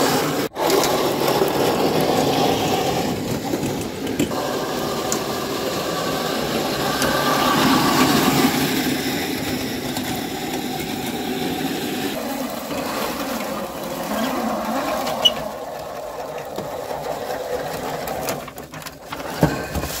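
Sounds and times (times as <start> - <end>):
electric motor whine: 4.4 - 16.0.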